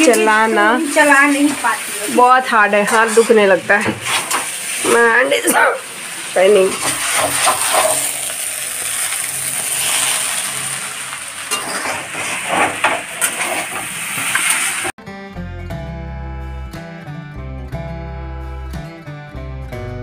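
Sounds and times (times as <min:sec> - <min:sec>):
noodles sizzling in a wok: 0:00.0 - 0:15.0
spatula scraping a pan: 0:00.1 - 0:05.0, 0:06.4 - 0:14.9
strummed guitar music: 0:15.0 - 0:20.0.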